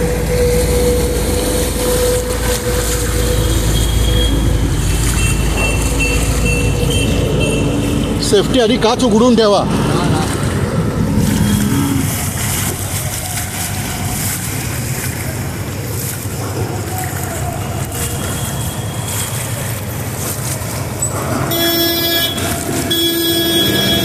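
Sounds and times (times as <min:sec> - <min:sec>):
low engine hum: 0:00.0 - 0:24.0
water splashing under wheels: 0:00.0 - 0:24.0
car horn: 0:21.4 - 0:24.0.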